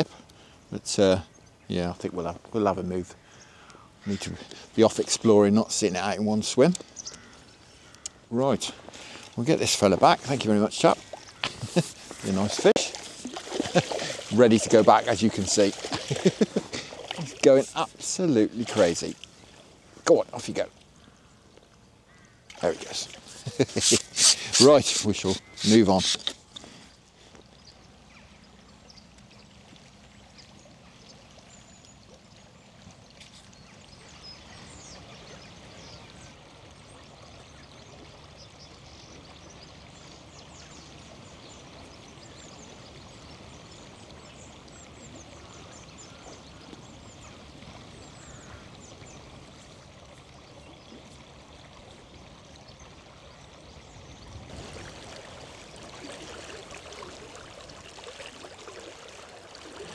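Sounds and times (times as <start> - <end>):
river water flowing: 0.0 - 59.9
small high ticks: 6.8 - 8.2.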